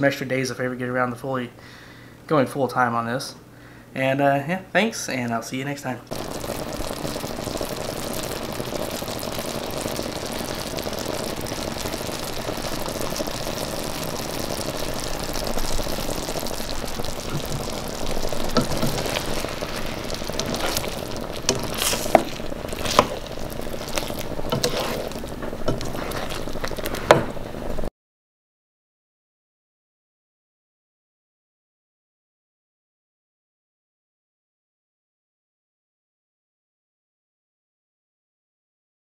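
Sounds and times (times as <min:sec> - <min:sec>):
sauce bubbling and sizzling: 0:06.1 - 0:27.9
spatula scraping a pan: 0:17.3 - 0:27.5.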